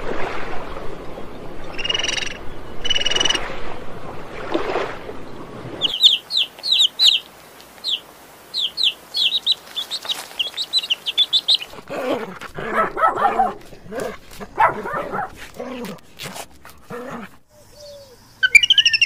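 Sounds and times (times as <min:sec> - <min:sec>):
rushing background noise: 0:05.5 - 0:16.9
dolphins squeaking: 0:05.8 - 0:07.2, 0:08.6 - 0:11.9, 0:17.8 - 0:19.0
chicks peeping: 0:05.8 - 0:11.9.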